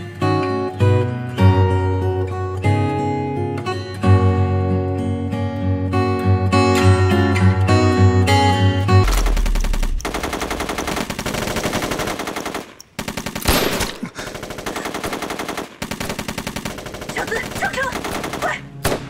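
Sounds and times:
rapid gunfire: 9.0 - 19.0.

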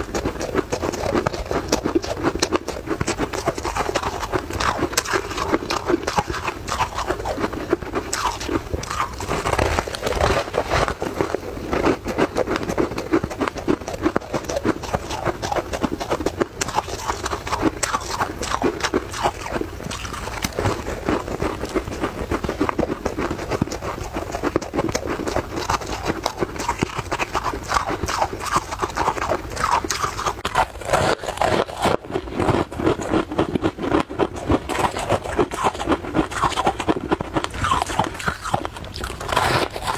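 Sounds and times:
chewing crunchy ice: 0.0 - 39.9.

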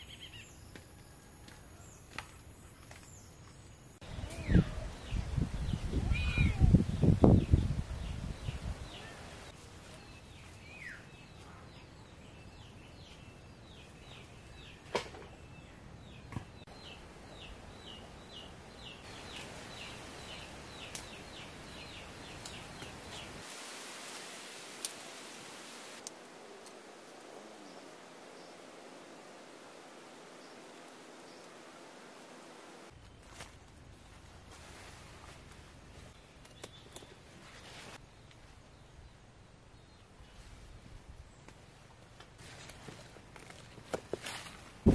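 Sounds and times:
faint outdoor background: 0.0 - 44.9
kitten meowing loudly: 6.0 - 6.7.

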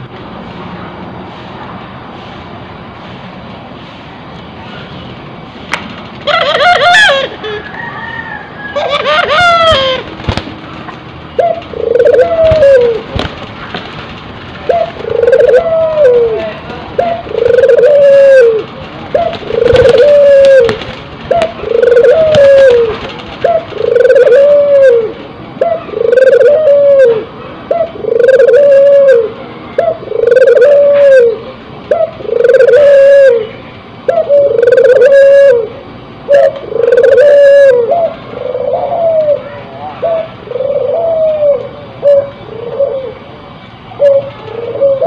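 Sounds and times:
dove cooing: 6.2 - 10.2, 11.3 - 13.4, 14.6 - 43.3, 43.9 - 45.0.

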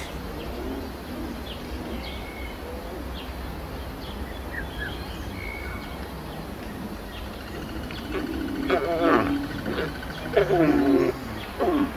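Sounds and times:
birds chirping and whistling: 0.0 - 2.5.

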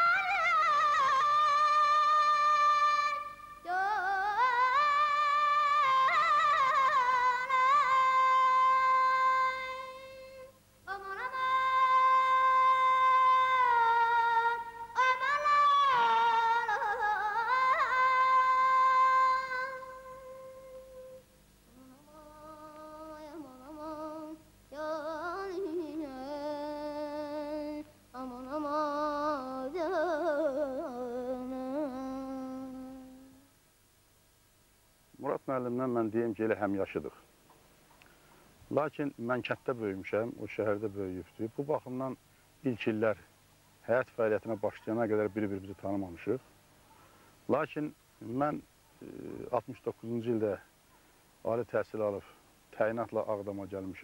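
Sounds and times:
solo voice singing wordlessly: 0.0 - 33.5.

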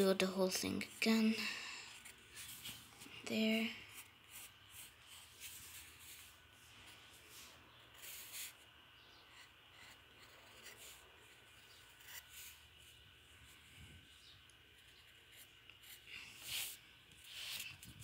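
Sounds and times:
low steady hum: 0.0 - 18.0
pencil scratching on paper: 8.0 - 8.6, 9.2 - 12.6.

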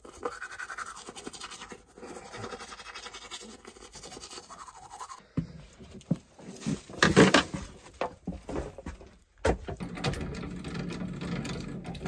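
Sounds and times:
toothbrush scrubbing teeth: 0.0 - 5.2.

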